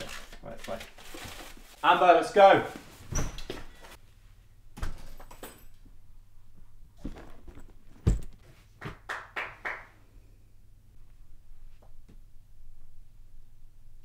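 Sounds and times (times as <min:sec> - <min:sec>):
suitcase handling knocks: 0:07.6 - 0:08.4.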